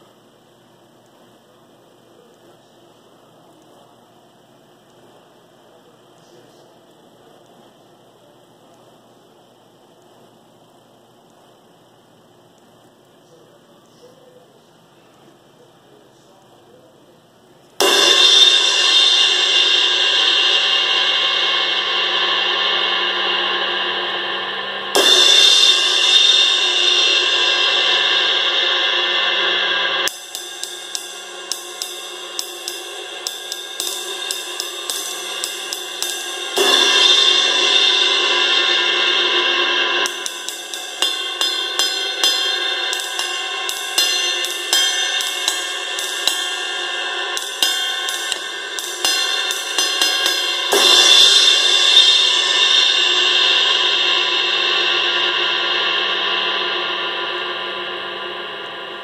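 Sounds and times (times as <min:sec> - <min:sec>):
crash cymbal ringing: 0:17.8 - 0:59.0
quick stick strokes on cymbal: 0:17.8 - 0:59.0.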